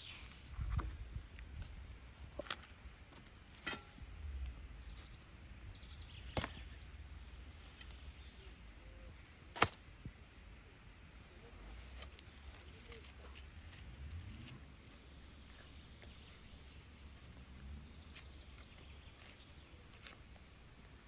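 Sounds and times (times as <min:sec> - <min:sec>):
low rumble: 0:13.3 - 0:19.7.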